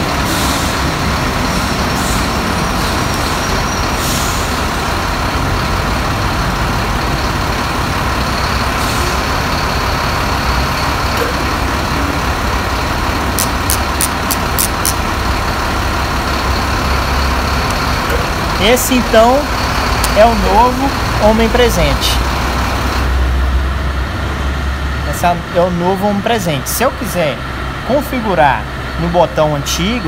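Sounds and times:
truck diesel engine running: 0:00.0 - 0:30.0
sharp clicks: 0:13.4 - 0:15.0.

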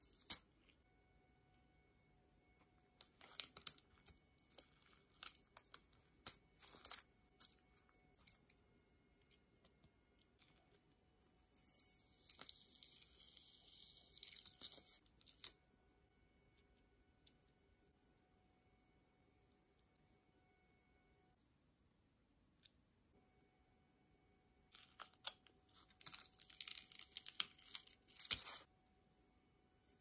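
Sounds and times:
vinyl sheet peeling crackles: 0:26.0 - 0:28.6.

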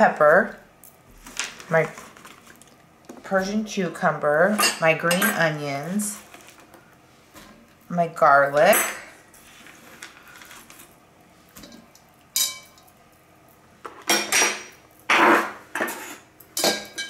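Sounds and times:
utensils clinking: 0:04.5 - 0:06.1, 0:11.6 - 0:13.0.

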